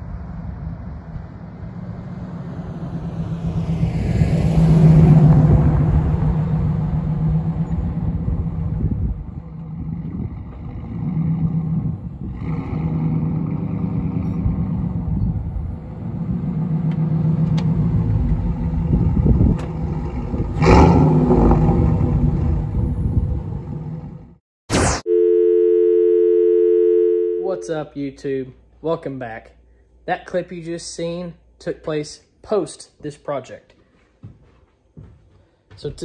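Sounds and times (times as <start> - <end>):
pickup truck engine driving by: 0.0 - 24.2.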